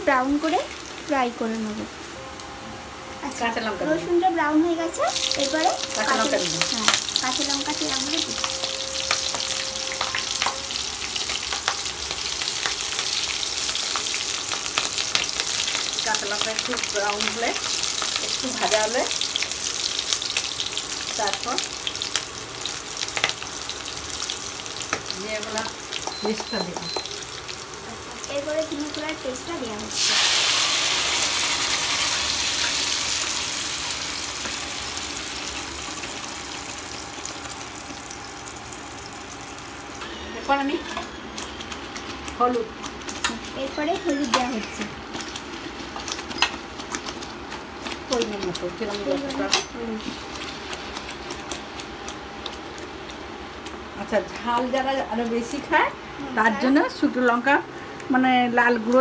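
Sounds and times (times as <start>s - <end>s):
garlic sizzling in oil: 0.0s - 2.2s, 2.8s - 57.5s
spatula stirring: 40.8s - 53.2s.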